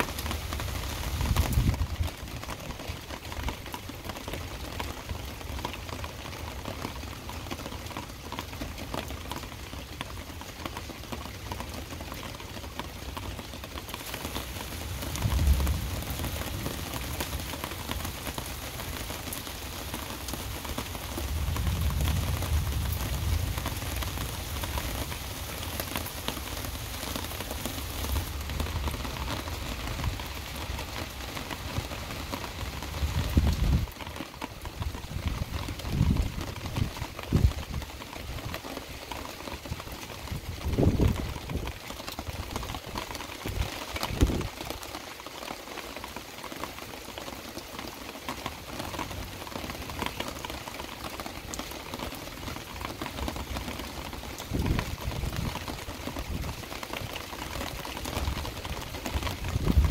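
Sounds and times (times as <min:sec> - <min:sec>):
heavy rain falling: 0:00.0 - 0:59.9
low thunder rumbles: 0:14.6 - 0:18.2, 0:21.0 - 0:25.8, 0:59.4 - 0:59.9.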